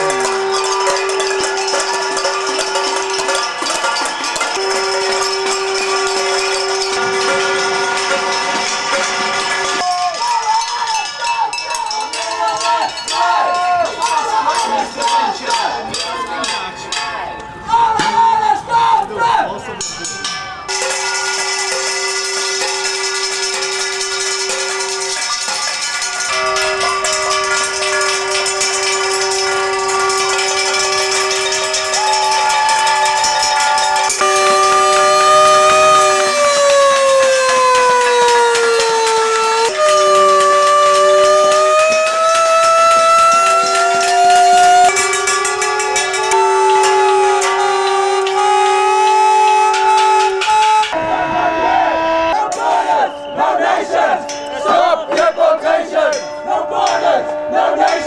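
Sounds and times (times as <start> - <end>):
steady horn tones: 0.0 - 9.8, 18.8 - 58.0
higher horn tone: 0.0 - 9.9, 19.8 - 58.0.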